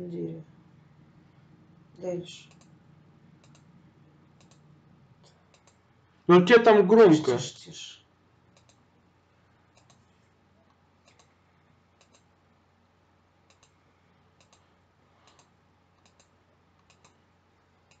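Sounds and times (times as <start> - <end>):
computer mouse clicks: 2.4 - 2.8, 3.4 - 3.7, 4.4 - 5.8, 8.5 - 8.8, 9.7 - 10.1, 11.0 - 11.4, 12.0 - 12.3, 13.5 - 13.8, 14.4 - 17.2.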